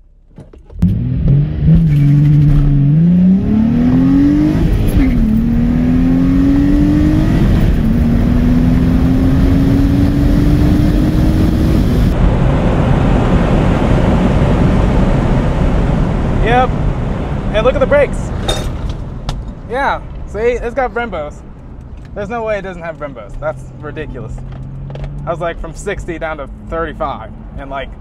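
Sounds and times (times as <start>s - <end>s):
road and wind noise: 0.0s - 28.0s
car engine revving through gears: 0.7s - 16.4s, 24.4s - 25.6s, 26.2s - 27.6s.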